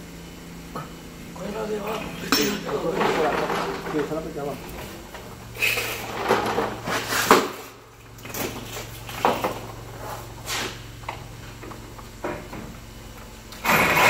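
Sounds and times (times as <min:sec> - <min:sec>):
steady low hum: 0:00.0 - 0:14.0
knocks and clatter: 0:01.9 - 0:05.4.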